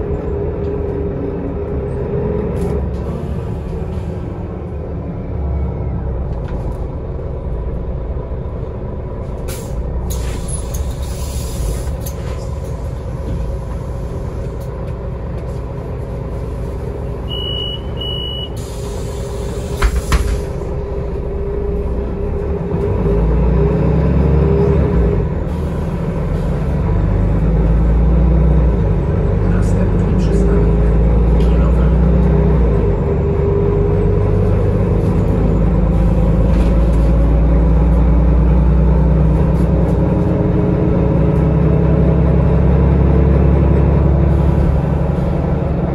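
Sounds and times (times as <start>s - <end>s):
bus engine rumble: 0.0s - 45.9s
pneumatic air hiss: 9.5s - 12.2s, 18.6s - 20.6s
short electronic beeps: 17.3s - 18.6s
clunk: 19.8s - 20.6s.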